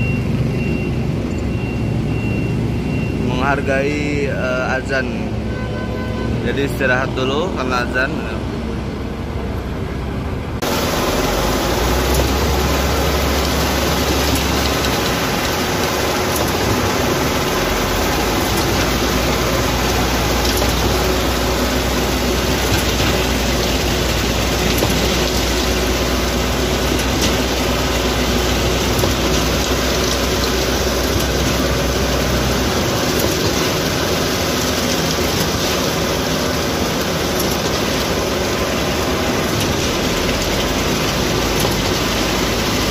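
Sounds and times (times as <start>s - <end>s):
diesel engines running: 0.0s - 42.9s
wet concrete rushing down chute: 10.6s - 42.9s.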